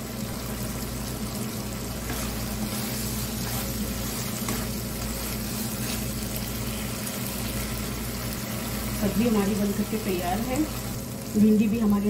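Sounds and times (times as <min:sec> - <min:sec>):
gravy sizzling in a pan: 0:00.0 - 0:12.0
spatula scraping a pan: 0:02.0 - 0:07.4.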